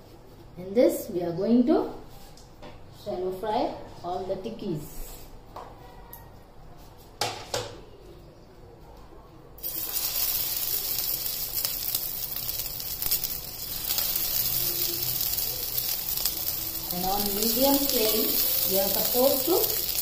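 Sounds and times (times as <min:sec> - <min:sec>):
patties sizzling in hot oil: 0:09.6 - 0:20.0.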